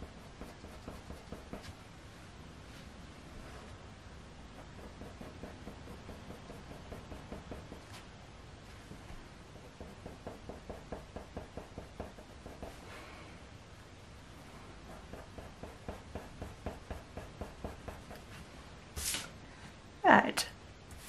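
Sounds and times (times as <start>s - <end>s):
pencil scratching on paper: 0.0s - 1.7s, 4.6s - 8.0s, 9.6s - 12.8s, 14.8s - 18.4s
short hiss: 19.0s - 19.4s.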